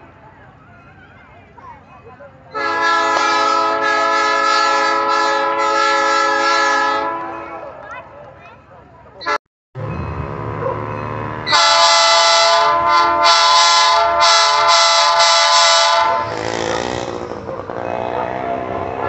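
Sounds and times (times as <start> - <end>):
train rumble: 0.0 - 19.0
locomotive horn: 2.5 - 7.8, 9.2 - 19.0.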